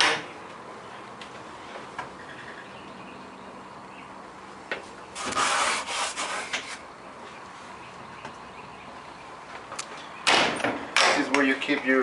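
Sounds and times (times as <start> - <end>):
rubbing and scraping handling noise: 5.2 - 6.8.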